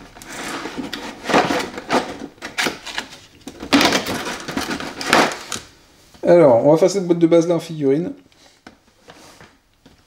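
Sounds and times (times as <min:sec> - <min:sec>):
cardboard box scraping and rustling: 0:00.2 - 0:02.1.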